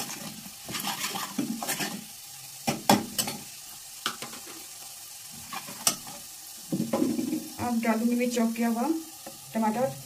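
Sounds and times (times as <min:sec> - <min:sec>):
ladle scraping and knocking a pan: 0:00.0 - 0:04.6, 0:05.4 - 0:07.7
faint sizzle: 0:00.0 - 0:10.0.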